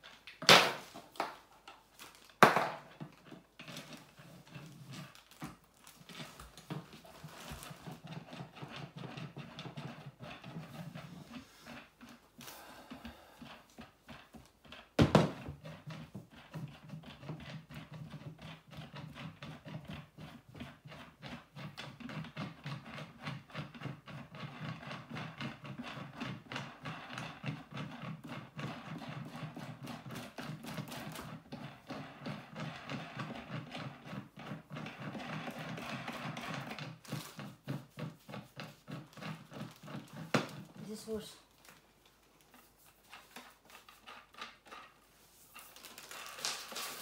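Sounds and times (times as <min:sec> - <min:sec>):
small rapid clicks and creaks: 0:15.6 - 0:47.0.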